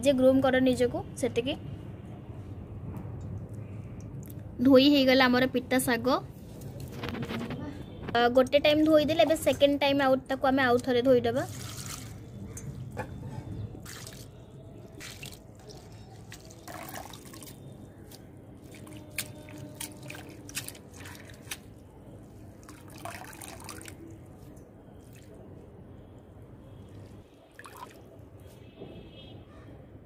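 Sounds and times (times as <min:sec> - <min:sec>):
water dripping and splashing: 0:10.7 - 0:13.1, 0:13.8 - 0:25.6, 0:26.8 - 0:28.5
water swishing: 0:13.8 - 0:25.5.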